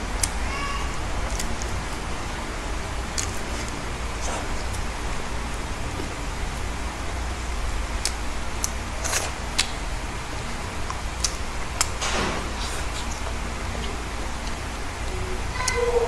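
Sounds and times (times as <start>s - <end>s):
steady hiss: 0.0s - 15.7s
low hum: 0.0s - 16.0s
chewing and mouth smacks: 1.2s - 1.8s, 3.0s - 4.8s, 8.0s - 9.9s, 10.8s - 15.8s.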